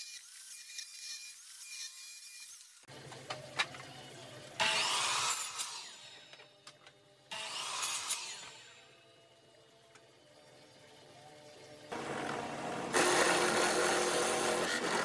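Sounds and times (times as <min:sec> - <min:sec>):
miter saw cutting wood: 0:11.9 - 0:15.0.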